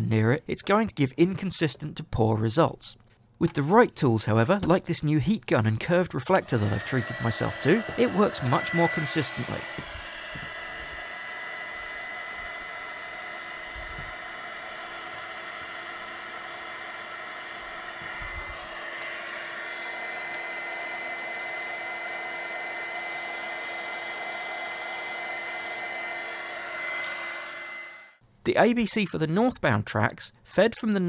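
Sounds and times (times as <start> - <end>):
hot air gun whining: 6.2 - 28.2.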